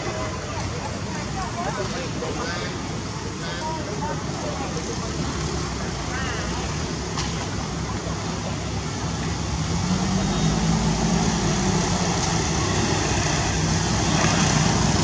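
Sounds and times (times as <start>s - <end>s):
traffic drone: 0.0s - 15.0s
vehicle passing: 9.4s - 15.0s.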